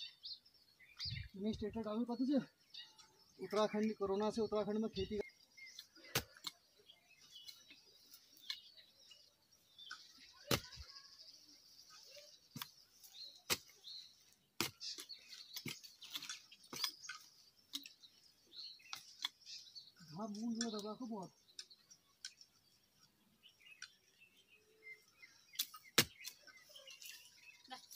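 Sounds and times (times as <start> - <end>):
birds chirping: 0.0 - 27.9
hoe chopping into soil: 6.0 - 6.6, 10.4 - 10.8, 13.4 - 13.8, 14.6 - 17.2, 25.5 - 26.4.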